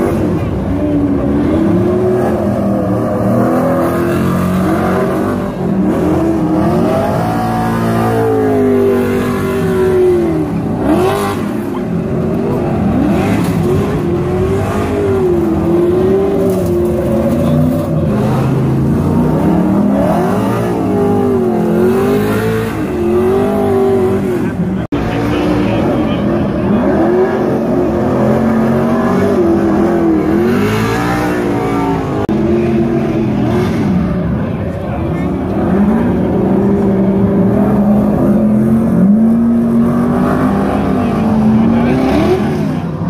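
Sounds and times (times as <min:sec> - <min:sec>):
race truck engines revving: 0:00.0 - 0:43.0.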